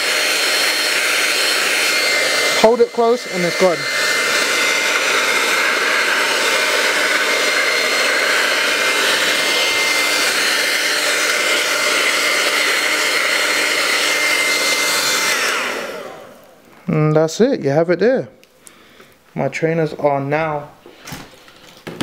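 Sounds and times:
hair dryer running: 0.0 - 16.7.

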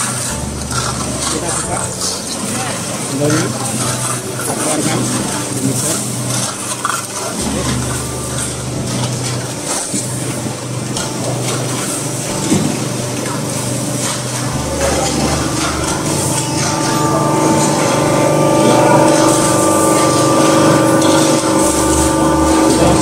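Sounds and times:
churning of damp cement mix: 0.0 - 18.2
steady machine hum: 0.0 - 23.0.

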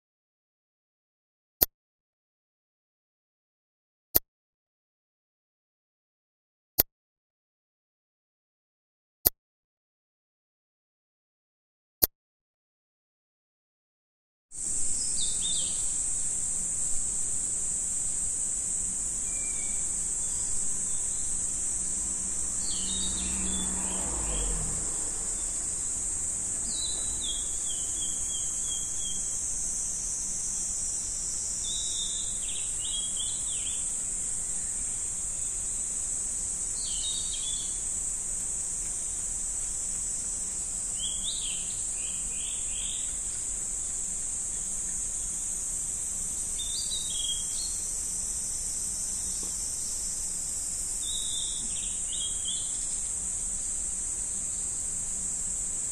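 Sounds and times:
high-pitched insect chorus: 14.6 - 55.9
bird chirping: 14.8 - 17.0, 18.8 - 25.8, 26.6 - 35.6, 36.8 - 37.8, 40.9 - 45.4, 46.3 - 47.9, 51.0 - 53.8.

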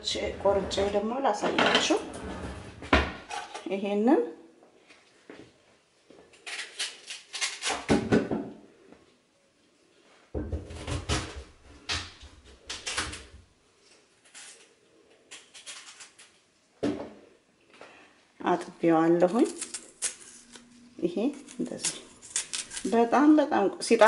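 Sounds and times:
crinkly rustling: 19.3 - 23.0.

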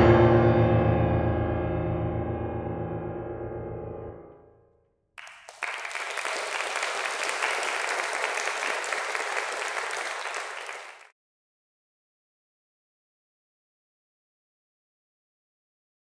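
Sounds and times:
audience applauding: 5.2 - 11.1.

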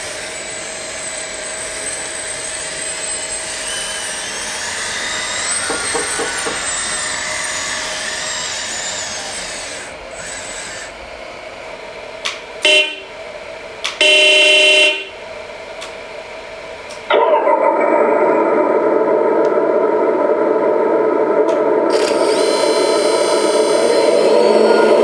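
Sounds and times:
hydraulic pump whining: 0.0 - 11.2, 21.4 - 25.0
horn toots: 12.6 - 13.1, 14.0 - 15.2.

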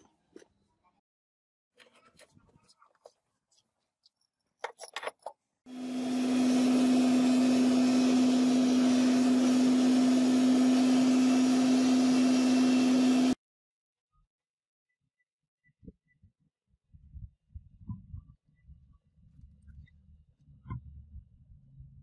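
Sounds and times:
gas forge hissing and humming: 5.7 - 13.4.

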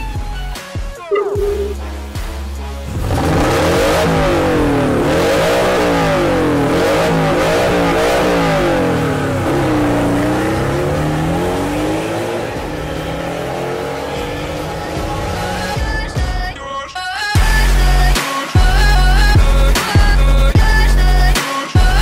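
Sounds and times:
sports car engine revving: 1.3 - 16.5.

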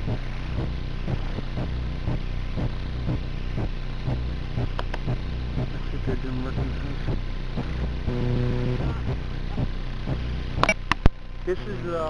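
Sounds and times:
engine humming with regular knock: 0.0 - 12.0
sharp clicks: 4.1 - 5.2, 9.5 - 11.2.

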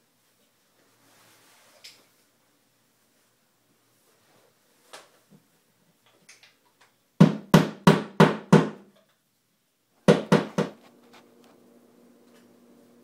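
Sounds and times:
hammer striking wall anchors: 7.2 - 8.9, 10.0 - 10.8.

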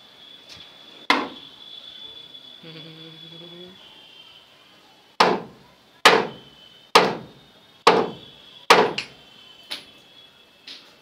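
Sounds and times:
hammer striking wooden box: 5.2 - 6.3, 7.0 - 7.3, 7.9 - 9.1.

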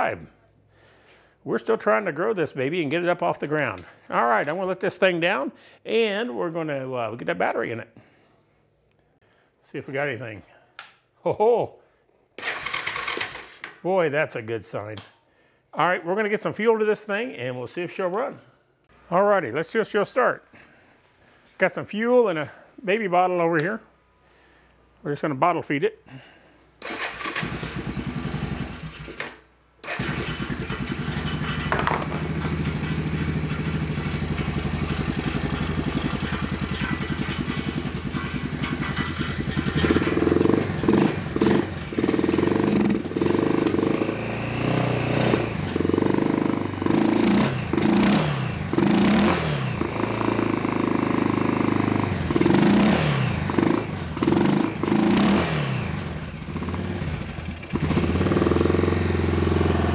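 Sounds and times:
engine starting and running: 12.4 - 13.8, 26.8 - 59.9
engine revving with throttle blips: 32.4 - 59.9.

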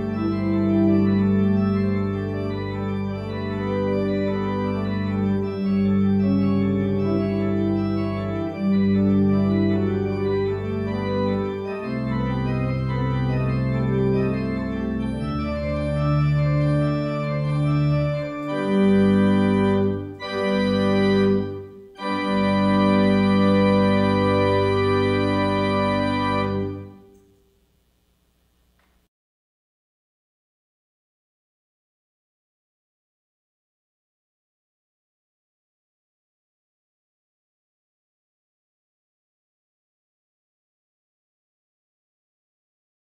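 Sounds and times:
organ playing sustained chords: 0.0 - 28.0.

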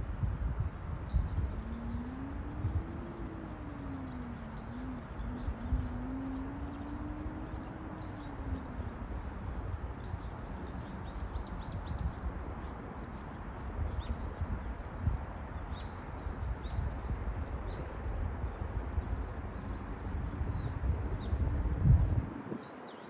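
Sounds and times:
steady low rumble: 0.0 - 22.5
faint wavering low hum: 0.2 - 22.6
small birds chirping: 1.1 - 9.4.

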